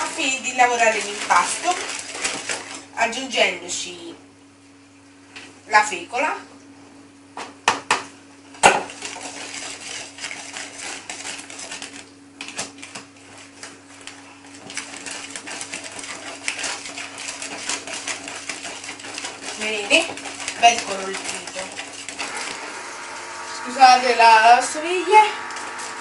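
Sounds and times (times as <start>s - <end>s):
whisk scraping a plastic bowl: 0.0s - 2.9s, 8.9s - 26.0s
dishwasher humming: 0.0s - 4.2s, 7.3s - 26.0s.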